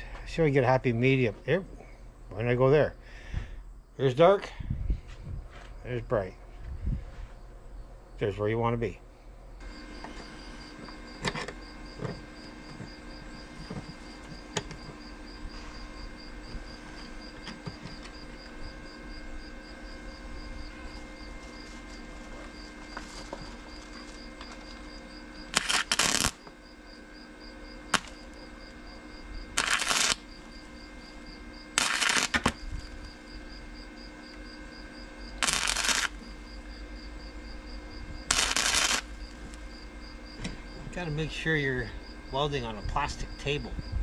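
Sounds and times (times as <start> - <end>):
welding arc bursts: 25.4 - 26.4, 27.9 - 28.7, 29.5 - 30.5, 31.7 - 32.6, 35.4 - 36.2, 38.3 - 39.7.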